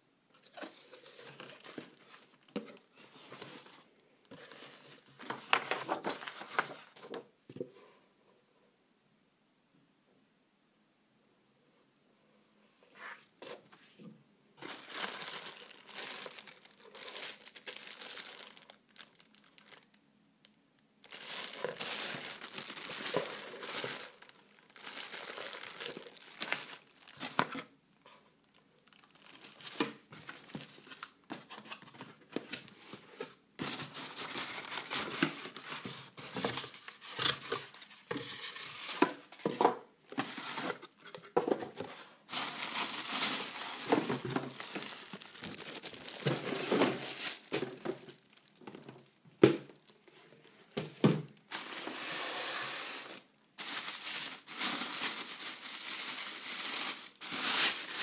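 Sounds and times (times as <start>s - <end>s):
cardboard and plastic bag crinkling: 0.4s - 7.2s, 14.6s - 19.9s, 21.0s - 58.0s.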